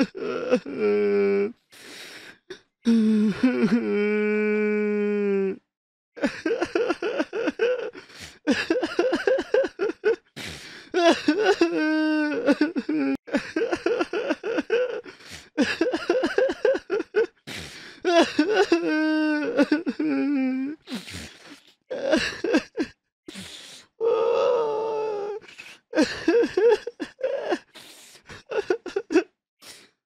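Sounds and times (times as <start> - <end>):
person sobbing: 0.0 - 1.5, 2.9 - 5.6, 6.2 - 20.9, 21.9 - 29.3
gasping breaths: 1.6 - 3.5, 7.9 - 8.6, 10.4 - 11.0, 15.0 - 15.7, 17.4 - 18.1, 19.4 - 22.4, 23.3 - 26.3, 27.2 - 30.0
person wailing: 11.0 - 13.2, 18.1 - 20.8, 24.0 - 25.4.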